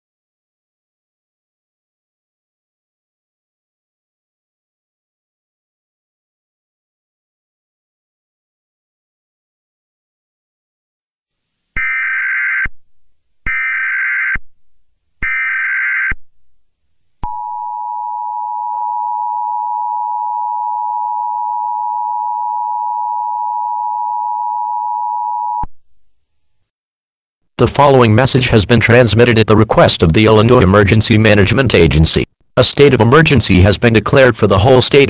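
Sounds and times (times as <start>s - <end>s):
two-tone attention signal: 17.2s - 25.7s.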